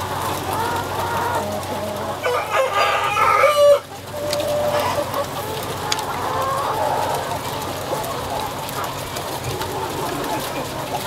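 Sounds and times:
chickens clucking and calling: 0.0s - 11.0s
loud drawn-out chicken call: 2.2s - 5.2s.

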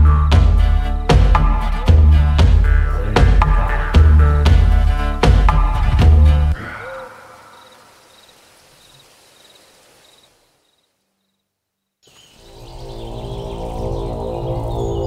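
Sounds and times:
low music drone: 0.0s - 6.6s, 12.5s - 15.0s
soundtrack music: 0.0s - 6.6s
crickets chirping: 6.6s - 15.0s.

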